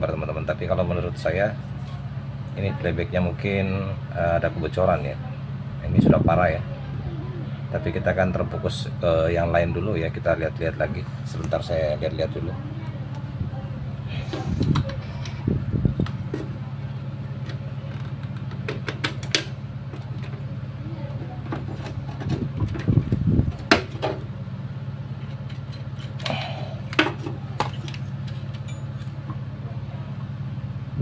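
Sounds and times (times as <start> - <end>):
steady low hum: 0.0 - 31.0
clicks and rustles of wiring: 17.4 - 20.4, 25.2 - 29.2.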